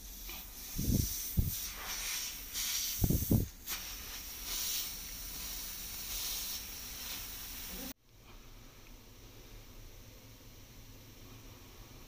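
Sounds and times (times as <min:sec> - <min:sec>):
wet sponge hissing on pipe: 0:00.0 - 0:08.0.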